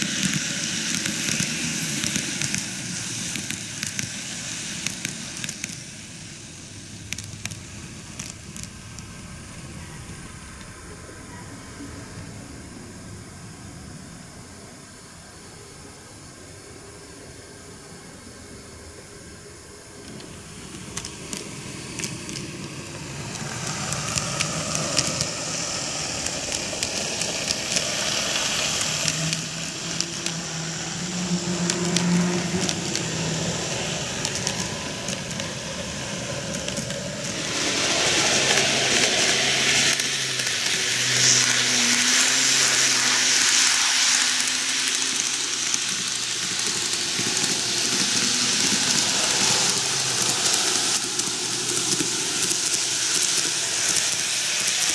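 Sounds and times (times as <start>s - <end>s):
model train wheels rattling: 0.0s - 12.2s, 19.9s - 54.9s
low motor hum: 0.0s - 54.9s
fine clicking: 20.0s - 37.4s, 38.1s - 54.9s.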